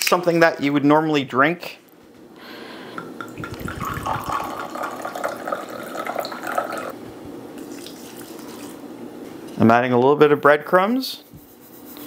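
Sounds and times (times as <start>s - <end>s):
wine pouring into glass: 3.0s - 7.0s.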